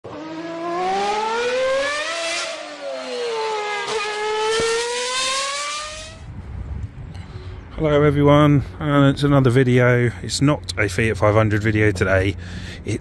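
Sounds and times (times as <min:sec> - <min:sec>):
car engine revving: 0:00.0 - 0:06.2.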